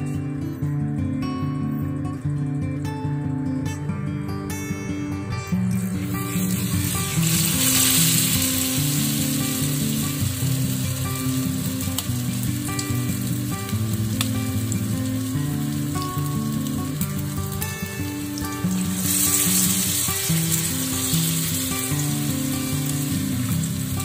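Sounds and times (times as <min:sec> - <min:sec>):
acoustic guitar music: 0:00.0 - 0:24.0
batter sizzling in oil: 0:05.6 - 0:24.0
oil popping: 0:05.6 - 0:24.0.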